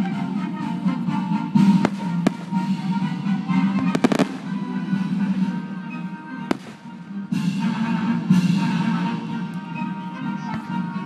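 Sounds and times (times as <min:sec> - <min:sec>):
music playing: 0:00.0 - 0:11.0
firework shells bursting: 0:01.7 - 0:03.1, 0:03.7 - 0:05.6, 0:06.5 - 0:07.2.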